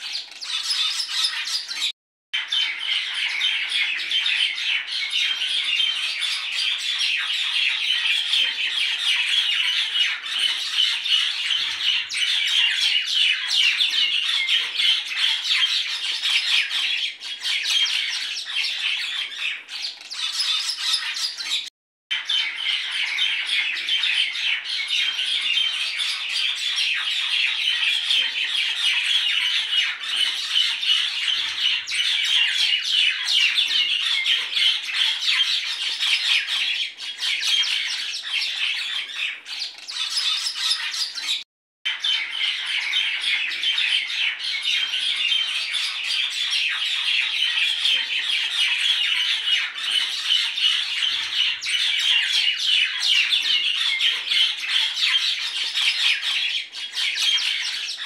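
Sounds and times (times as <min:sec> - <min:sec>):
many birds chirping and squawking: 0:00.0 - 0:58.0.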